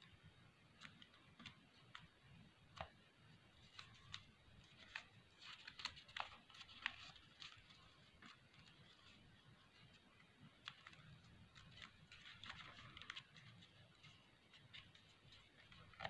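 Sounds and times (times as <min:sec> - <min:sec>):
paper crinkling as folded: 0:03.6 - 0:09.9, 0:10.5 - 0:16.0.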